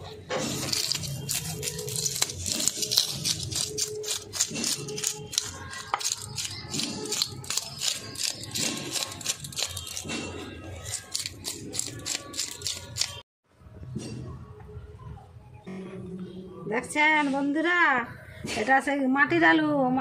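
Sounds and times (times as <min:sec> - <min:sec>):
knife scraping fish scales: 0:00.4 - 0:13.2.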